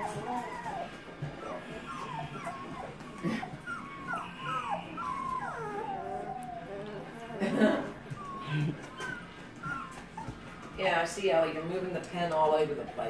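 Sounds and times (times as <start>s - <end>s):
puppies whimpering and squeaking: 0.0s - 13.0s.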